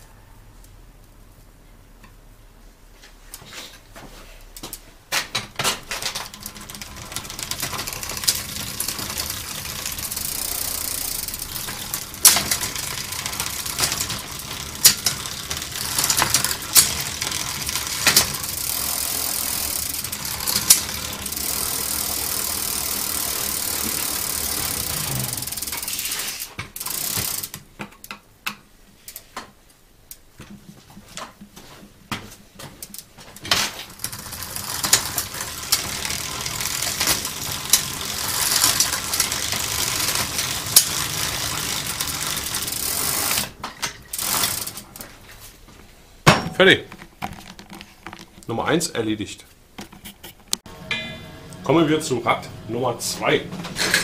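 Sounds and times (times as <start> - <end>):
bicycle chain running over sprockets: 5.8 - 27.6, 33.7 - 45.1
sharp drivetrain clicks: 5.8 - 27.6, 33.8 - 45.0.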